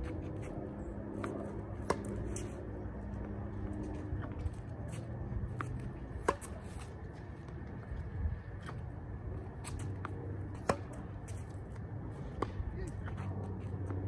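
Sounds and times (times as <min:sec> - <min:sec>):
tennis racket striking balls: 0:01.2 - 0:02.5, 0:04.9 - 0:06.9, 0:09.6 - 0:11.7, 0:12.3 - 0:14.0.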